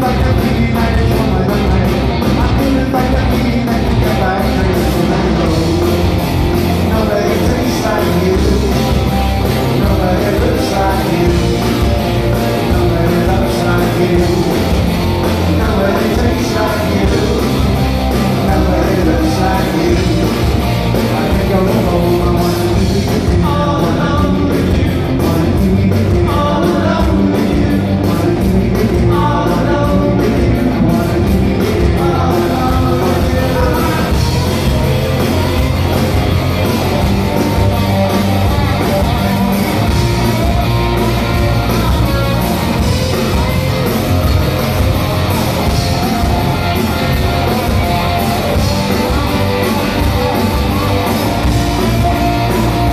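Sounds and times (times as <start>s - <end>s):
lead vocal singing: 0.0s - 35.6s
rock band playing: 0.0s - 52.9s.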